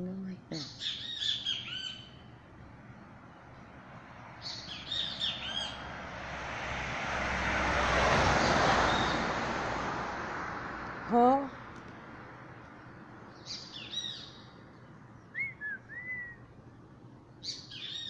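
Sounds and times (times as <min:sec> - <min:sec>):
bird chirping: 0:00.5 - 0:05.9, 0:12.8 - 0:16.5, 0:17.2 - 0:18.0.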